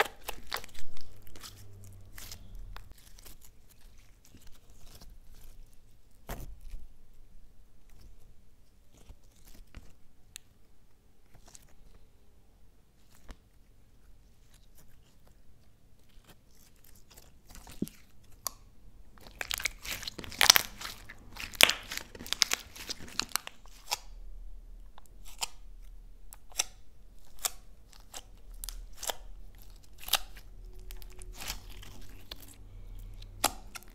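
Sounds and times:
slime crackling and popping: 0.0 - 6.9, 16.1 - 24.2, 24.9 - 33.9.

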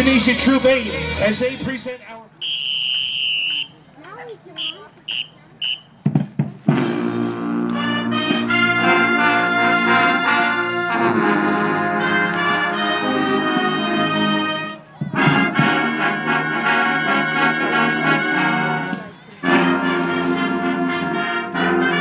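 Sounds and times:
brass band playing chords: 4.5 - 22.0.

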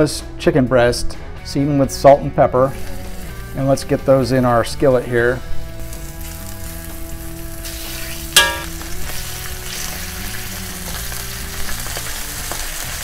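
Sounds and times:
soft background music: 0.0 - 13.0
chicken sizzling in a skillet: 2.6 - 13.0
sharp clink: 8.4 - 8.9.

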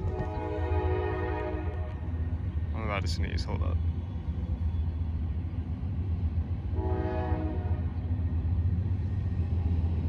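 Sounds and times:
distant locomotive air horn: 0.0 - 2.1, 6.7 - 8.0.

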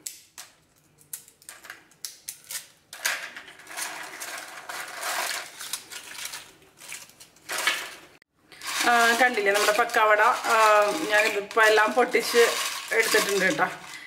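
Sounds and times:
fried snack strips crackling: 8.6 - 14.0.

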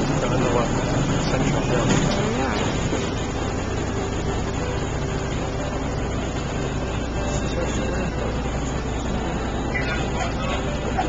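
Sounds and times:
boat motor rumbling: 0.0 - 11.0.

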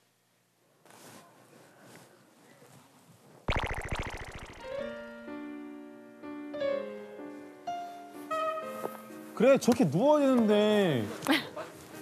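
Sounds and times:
background keyboard music: 4.4 - 9.5.

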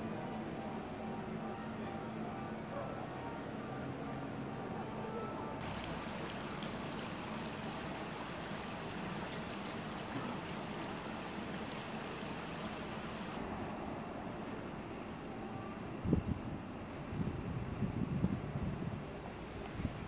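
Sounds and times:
fountain water splashing into pool: 5.6 - 13.4.

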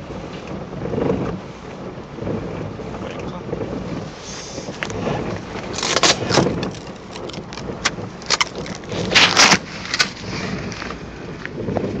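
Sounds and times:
car interior noise: 0.0 - 12.0
rain suit rustling and crinkling: 4.0 - 12.0.

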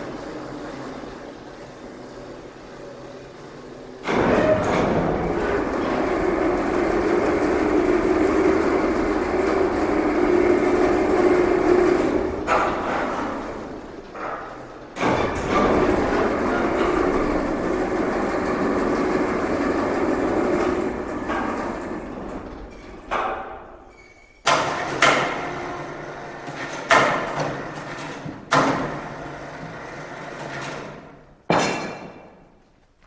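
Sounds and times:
steady mechanical rumble: 0.0 - 23.9
loud echoing bangs: 31.5 - 32.6.

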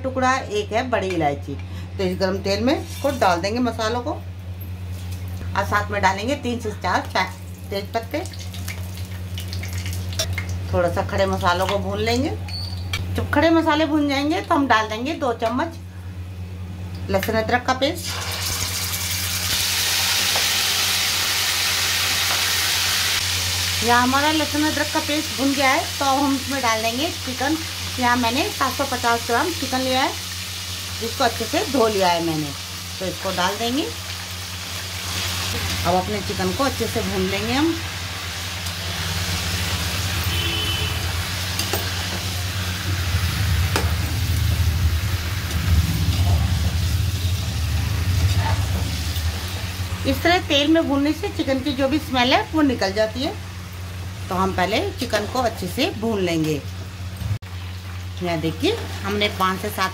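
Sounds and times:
steady low hum: 0.0 - 18.0
paste frying in hot oil: 6.8 - 12.9, 18.0 - 59.9.

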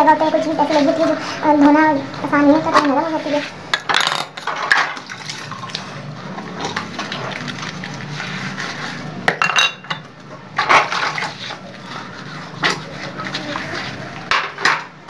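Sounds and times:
dishes clinking and scraping: 2.7 - 5.4, 6.3 - 15.0.

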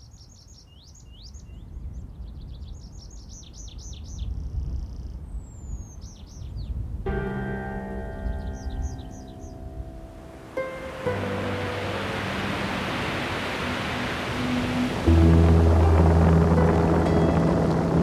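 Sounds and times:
songbirds chirping and trilling: 0.0 - 15.5
music with long held notes: 7.1 - 18.0
low steady rumble: 11.5 - 18.0.

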